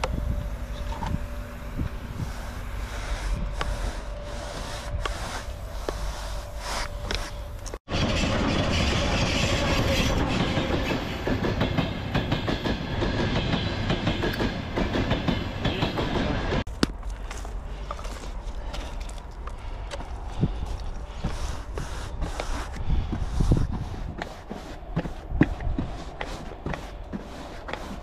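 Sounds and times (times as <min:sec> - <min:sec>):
outdoor noise: 0:00.0 - 0:28.0
train wheels rushing on rails: 0:07.9 - 0:16.7.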